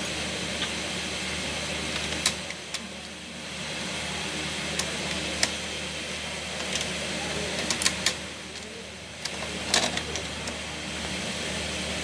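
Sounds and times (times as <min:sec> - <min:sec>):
tape player mechanical hum: 0:00.0 - 0:12.0
tape transport clicks: 0:01.9 - 0:03.2, 0:07.6 - 0:10.6.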